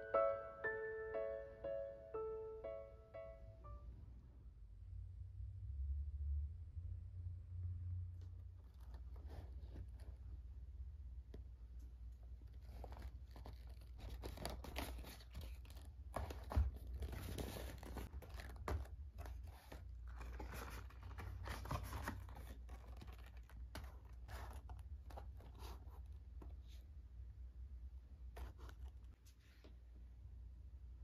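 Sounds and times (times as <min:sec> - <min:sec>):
paper packaging rustling and tearing: 0:12.4 - 0:26.0.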